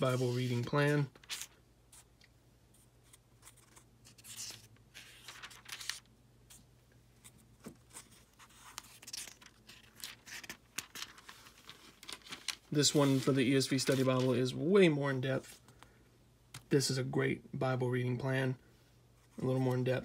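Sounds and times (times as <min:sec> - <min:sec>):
thin pages rustling: 0:00.0 - 0:02.1, 0:03.1 - 0:06.6, 0:07.2 - 0:14.6.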